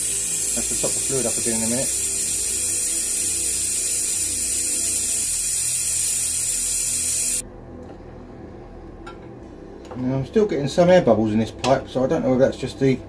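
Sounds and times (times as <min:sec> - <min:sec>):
air-powered brake bleeder hissing: 0:00.0 - 0:07.4.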